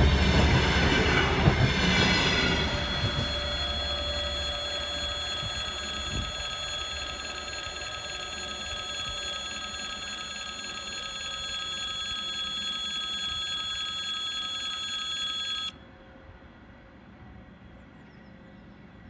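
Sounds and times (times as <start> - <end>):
level crossing warning bell ringing: 1.9 - 15.8.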